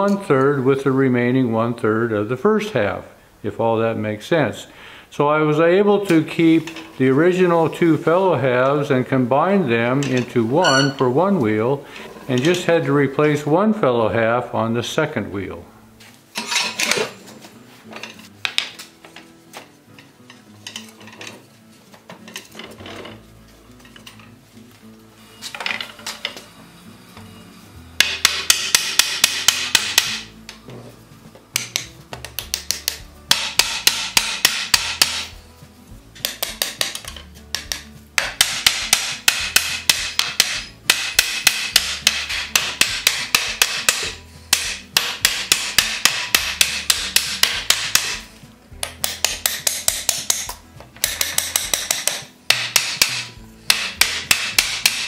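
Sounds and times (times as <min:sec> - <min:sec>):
hammer tapping wood: 0:10.6 - 0:11.0, 0:31.6 - 0:35.3, 0:36.2 - 0:48.2, 0:48.8 - 0:55.0.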